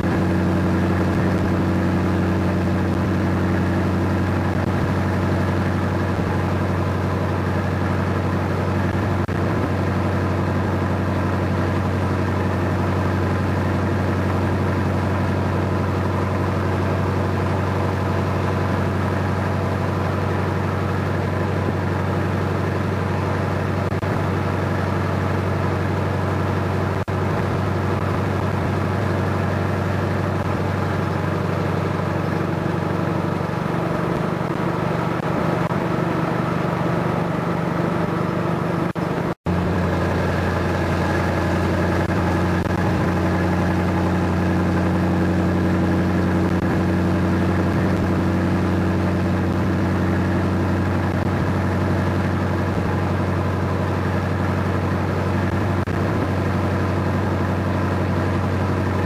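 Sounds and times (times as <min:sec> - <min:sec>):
vehicle engine droning: 0:00.0 - 0:59.0.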